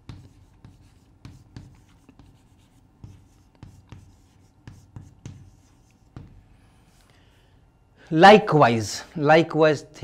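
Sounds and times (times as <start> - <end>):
chalk tapping and scratching on board: 0.0 - 7.0.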